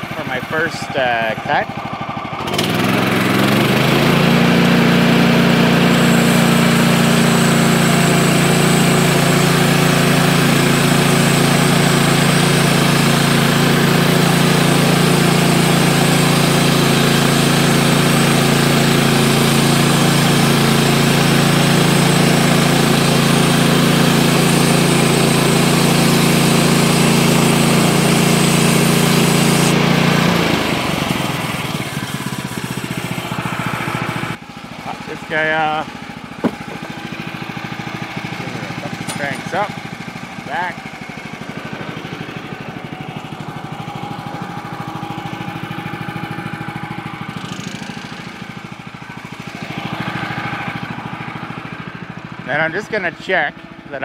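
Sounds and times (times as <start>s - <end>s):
sawmill engine running: 0.0s - 54.0s
band blade cutting log: 5.6s - 34.4s, 36.3s - 37.4s, 38.2s - 39.8s.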